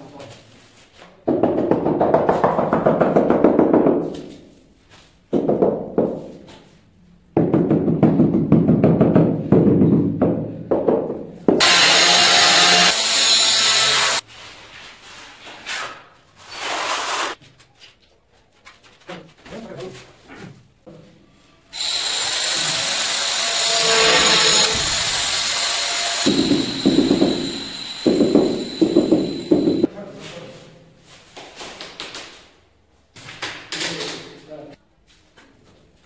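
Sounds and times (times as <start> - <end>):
harsh scraping hiss: 21.8 - 29.6.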